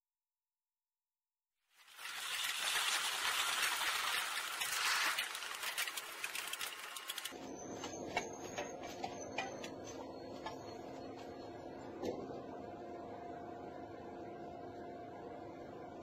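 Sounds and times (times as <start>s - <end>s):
rapid clicks and rattles: 1.8s - 7.4s.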